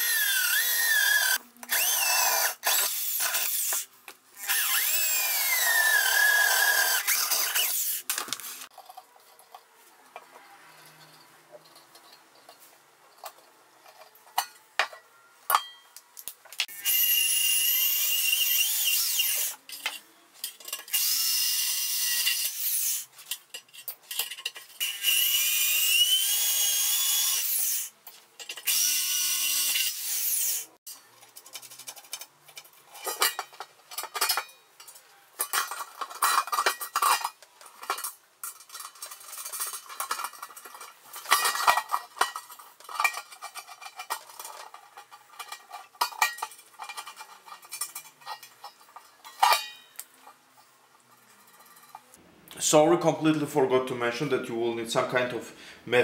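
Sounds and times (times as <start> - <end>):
electric drill boring through steel: 0.0 - 3.8, 4.4 - 8.6, 16.7 - 19.6, 20.9 - 23.1, 24.8 - 27.9, 28.6 - 30.7
metallic clinks and scraping: 4.5 - 16.8, 18.0 - 52.2.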